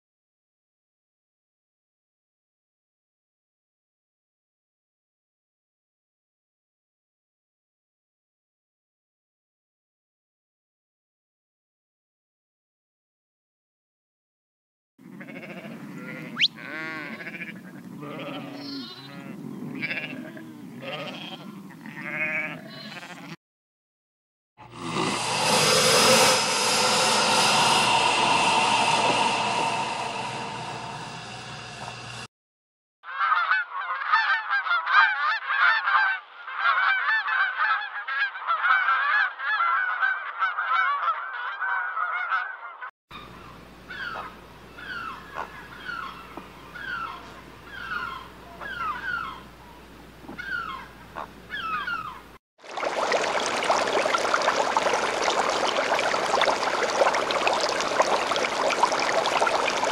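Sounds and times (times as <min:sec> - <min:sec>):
loud drawn-out pitched animal call: 0:24.7 - 0:32.1
steady rushing noise: 0:25.0 - 0:32.3.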